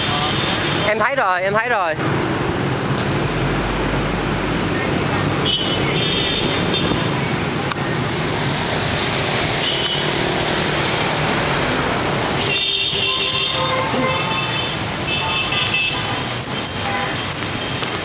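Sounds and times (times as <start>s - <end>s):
city road traffic: 0.0s - 18.0s
vehicle horns honking: 5.4s - 7.1s, 9.6s - 10.1s, 12.4s - 17.5s.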